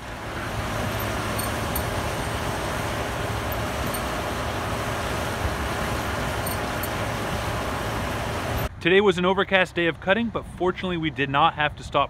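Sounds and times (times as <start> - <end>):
low engine hum: 0.0 - 8.8.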